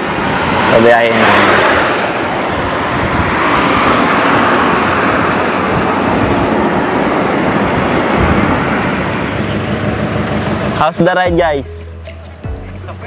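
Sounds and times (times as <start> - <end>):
wind rushing over microphone: 0.0 - 11.0
low rumble: 2.2 - 10.2.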